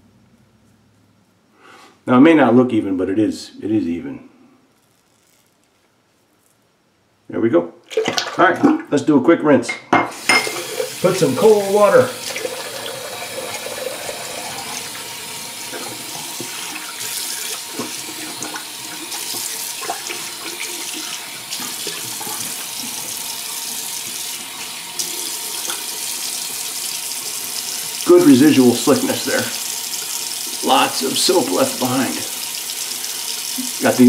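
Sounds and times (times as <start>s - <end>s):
water splashing: 7.9s - 8.9s
water running from sink tap: 10.1s - 34.0s.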